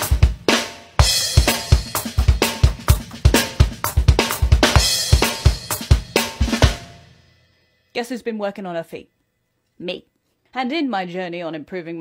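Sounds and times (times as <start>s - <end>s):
electronic drum kit beat: 0.0s - 7.2s.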